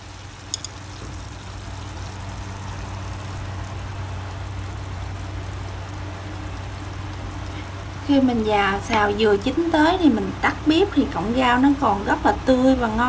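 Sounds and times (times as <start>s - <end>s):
faint sizzle from pan: 0.0s - 13.0s
induction cooktop humming: 0.0s - 13.0s
chopsticks clicking against pan: 0.5s - 0.8s.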